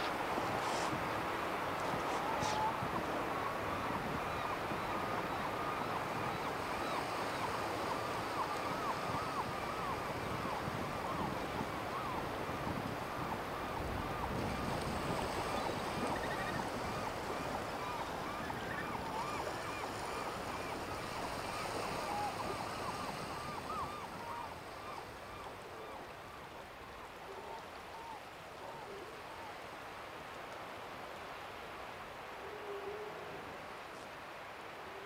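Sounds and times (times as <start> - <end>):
wind on microphone: 0.0 - 6.5, 7.7 - 24.4.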